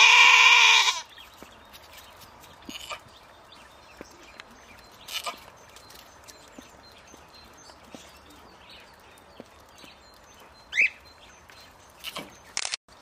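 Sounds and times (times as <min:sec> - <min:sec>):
goat bleating: 0:00.0 - 0:01.1, 0:02.7 - 0:03.1.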